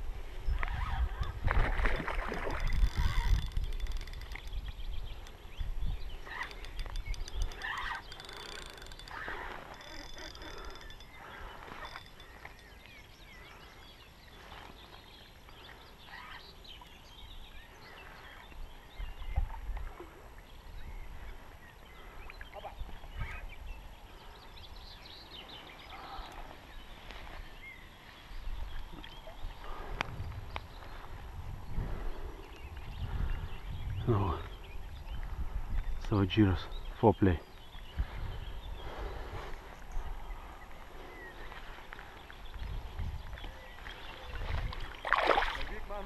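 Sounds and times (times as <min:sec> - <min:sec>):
birds chirping: 0:00.0 - 0:46.0
water splashing: 0:01.4 - 0:03.1, 0:44.0 - 0:46.0
spinning reel being wound: 0:02.6 - 0:04.6, 0:06.3 - 0:11.1.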